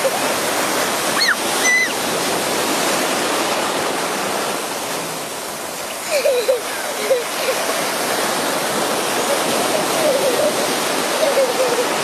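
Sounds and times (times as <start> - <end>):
surf breaking in shallow water: 0.0 - 12.0
child squealing: 1.2 - 2.0, 11.2 - 12.0.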